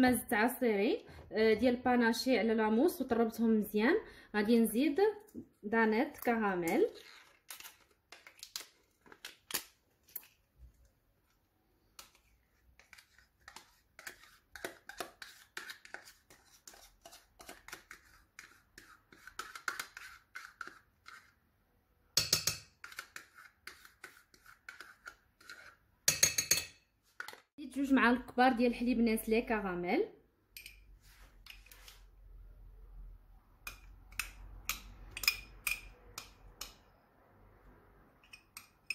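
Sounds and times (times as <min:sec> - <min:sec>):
metal spoon scraping plastic cup: 0:06.1 - 0:10.4, 0:12.0 - 0:21.4, 0:22.8 - 0:25.8
spoon clattering: 0:30.6 - 0:30.8, 0:33.7 - 0:36.8.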